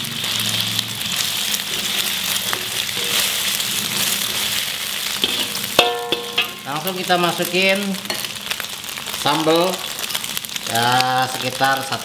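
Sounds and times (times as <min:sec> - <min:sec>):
metal spatula scraping a pan: 0:00.0 - 0:06.7
egg sizzling in hot oil: 0:00.0 - 0:12.0.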